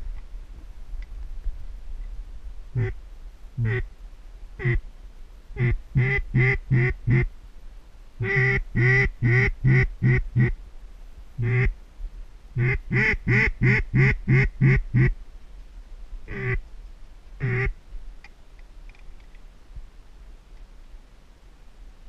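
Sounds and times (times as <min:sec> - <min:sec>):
duck call quacking: 0:02.8 - 0:03.0, 0:03.6 - 0:03.9, 0:04.6 - 0:04.8, 0:05.6 - 0:07.3, 0:08.2 - 0:10.6, 0:11.4 - 0:11.7, 0:12.6 - 0:15.1, 0:16.3 - 0:16.6, 0:17.4 - 0:17.8.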